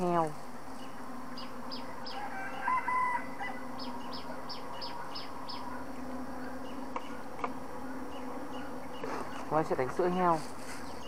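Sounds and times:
insect drone: 0.0s - 11.0s
rooster crowing: 2.0s - 5.1s.

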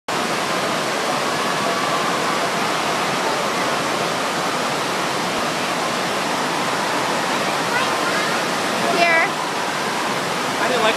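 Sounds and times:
water rushing: 0.1s - 10.9s.

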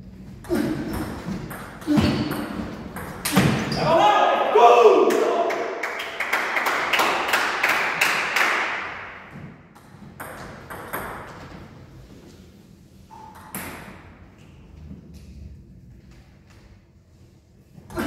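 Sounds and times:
table tennis ball bouncing: 0.8s - 3.7s, 9.3s - 11.6s.

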